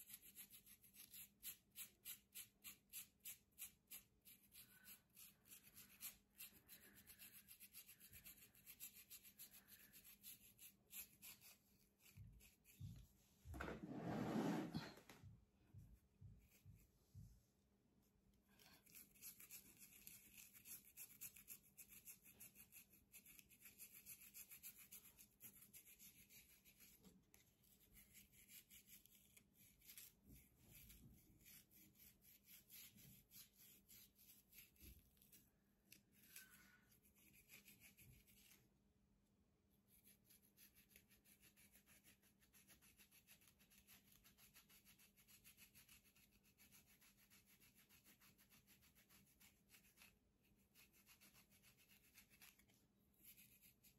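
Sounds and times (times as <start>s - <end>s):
comb scraping through hair: 4.4s - 15.1s, 18.6s - 30.2s.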